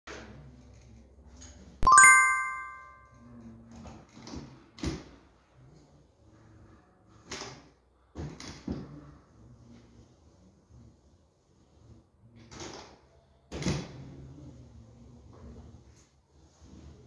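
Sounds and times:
bright metallic chime: 0:01.8 - 0:03.0
tool scraping plasterboard: 0:13.9 - 0:17.0.

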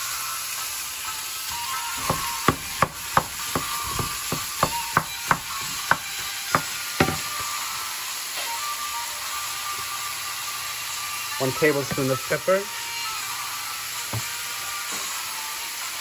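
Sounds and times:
meat sizzling in a skillet: 0:00.0 - 0:16.0
wooden spoon knocking pan: 0:02.0 - 0:07.5.

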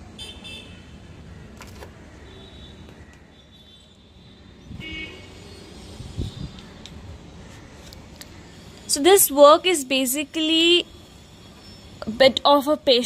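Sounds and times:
street traffic rumbling: 0:00.0 - 0:13.0
car horn toots: 0:04.8 - 0:05.4.

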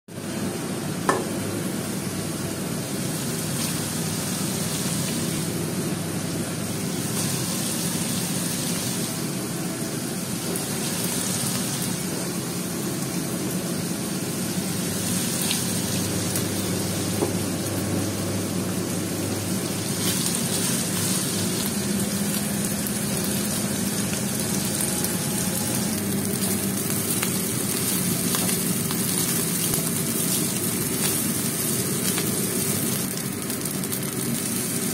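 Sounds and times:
rice sizzling in a wok: 0:00.1 - 0:34.9
sharp knock on wok: 0:01.1 - 0:01.4.

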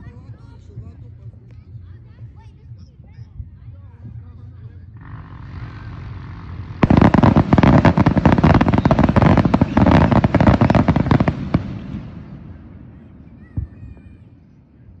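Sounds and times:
fireworks bangs and crackles: 0:05.0 - 0:15.0.

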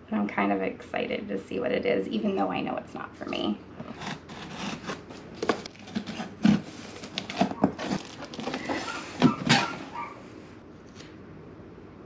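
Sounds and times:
cardboard scraping and knocking: 0:03.8 - 0:10.0
scissors slitting packing tape: 0:04.0 - 0:09.8.

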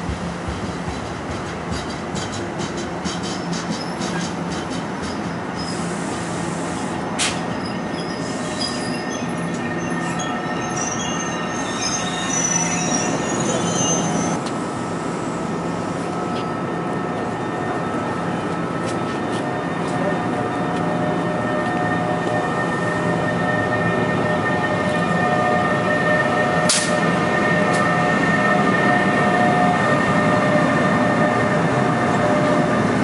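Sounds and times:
rail clicks: 0:00.0 - 0:05.3
train wheels rumbling on track: 0:00.0 - 0:33.0
high-pitched wheel squeal: 0:07.5 - 0:14.4.

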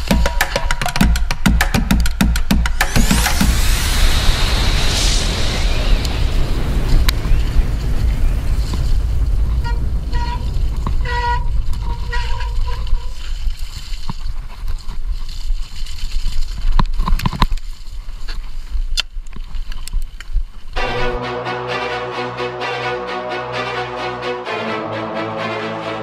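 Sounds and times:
tyres rumbling on trail: 0:02.7 - 0:19.7
wind buffeting microphone: 0:03.1 - 0:20.8.

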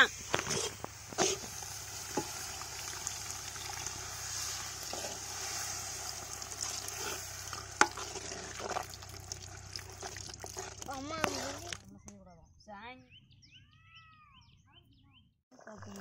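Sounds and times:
sauce sizzling in a pan: 0:00.0 - 0:11.8
metal ladle scraping and knocking pan: 0:00.3 - 0:03.7, 0:04.3 - 0:09.0.

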